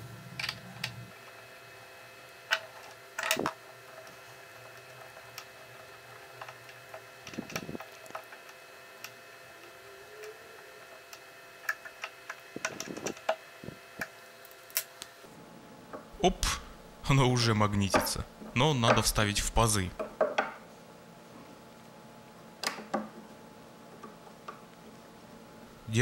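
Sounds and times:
faint steady hum: 0.0 - 26.0
clicks and knocks of small parts: 0.4 - 1.0, 2.5 - 13.4.

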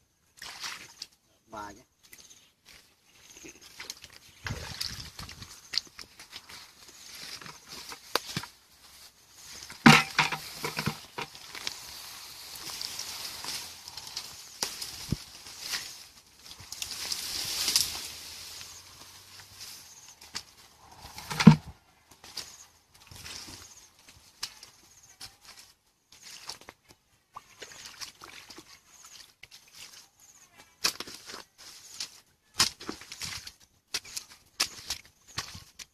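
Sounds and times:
feet squelching in mud: 0.4 - 1.2, 2.1 - 8.6, 25.5 - 30.2, 30.8 - 35.9
splashes in muddy stream: 0.4 - 1.2, 3.6 - 6.6, 26.1 - 30.1
hoe scraping wet mud: 9.3 - 20.1, 21.0 - 21.7, 30.8 - 35.9.

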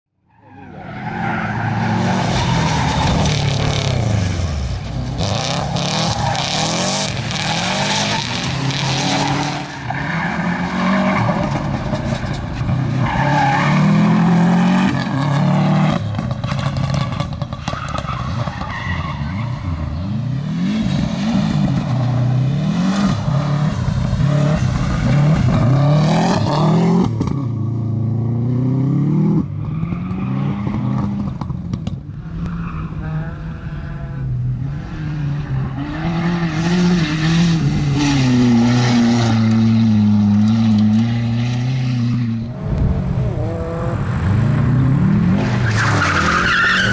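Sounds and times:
rally car engines revving: 0.5 - 46.9.

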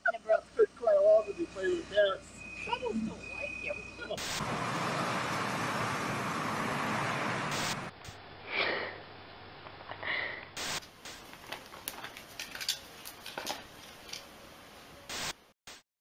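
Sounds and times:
steady rushing noise: 3.7 - 8.2.

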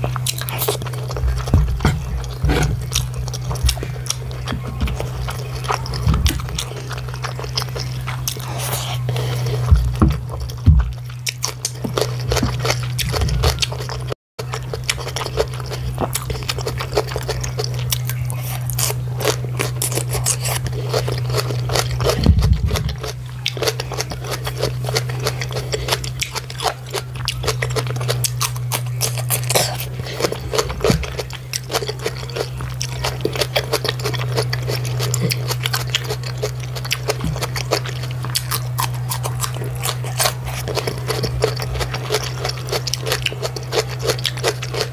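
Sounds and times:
biting into cucumber: 0.0 - 13.8
close chewing with mouth clicks: 0.0 - 44.9
steady low hum: 0.0 - 44.9.

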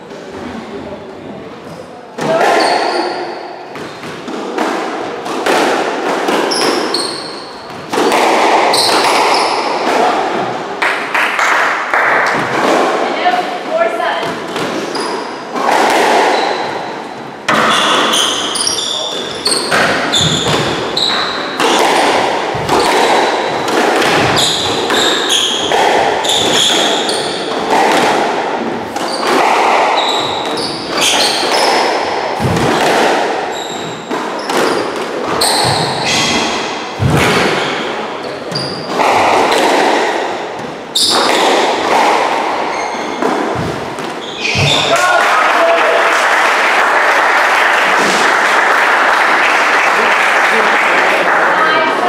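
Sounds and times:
squash ball smacking rackets and walls: 1.6 - 45.4
shoes squeaking on wooden floor: 6.5 - 9.8, 13.2 - 28.0, 28.9 - 32.8, 33.4 - 39.8, 40.6 - 45.0.

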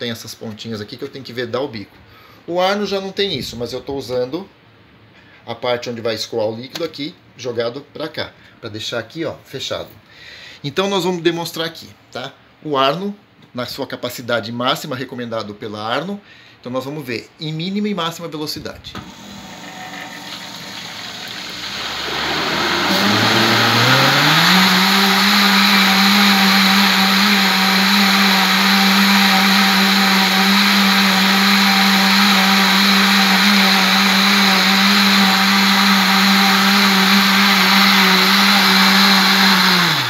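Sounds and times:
blender motor running: 19.0 - 40.0.

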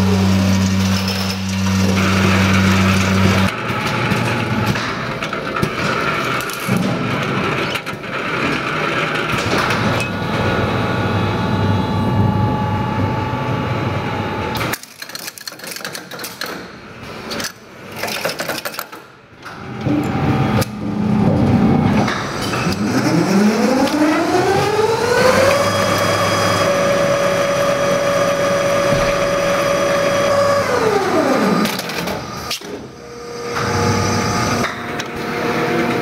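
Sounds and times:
winding machine clatter and whir: 0.0 - 11.1, 14.6 - 36.0
scattered mechanical clicks and knocks: 0.6 - 10.4, 14.5 - 26.2, 30.7 - 33.9.

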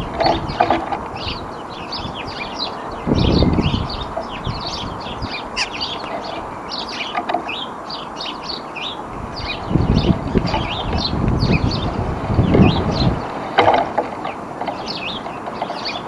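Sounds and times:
songbirds chirping: 0.0 - 16.0.

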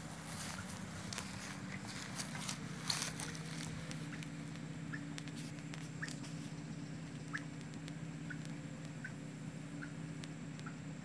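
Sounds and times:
young bird peeping: 0.0 - 10.9
low steady hum: 0.0 - 11.0
clicks and rustles: 0.3 - 6.5.

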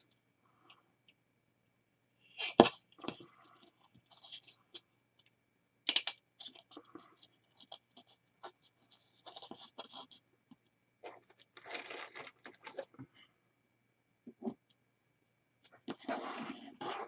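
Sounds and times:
plastic ornament rustles and clicks: 11.1 - 12.9.

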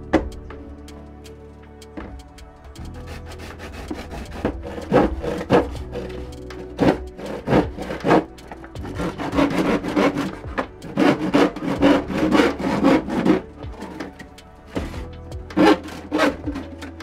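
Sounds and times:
hand saw cutting plastic: 3.0 - 15.0, 15.6 - 17.0.

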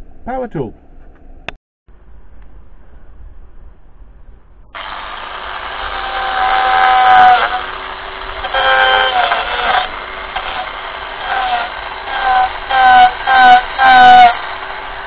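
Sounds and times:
power carver whining: 4.8 - 15.0.

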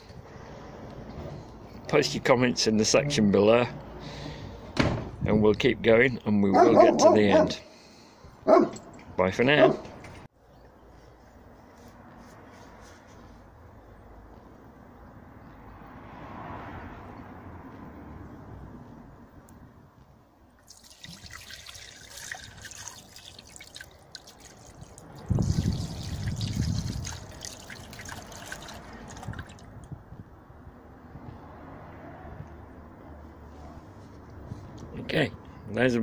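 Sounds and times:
liquid pouring and splashing: 20.6 - 29.8.

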